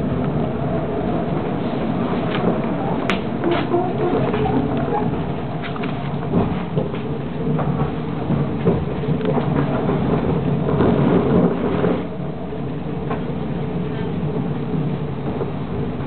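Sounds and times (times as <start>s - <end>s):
tram wheels rumbling on rails: 0.0s - 16.0s
clicks and knocks from track: 2.2s - 12.1s.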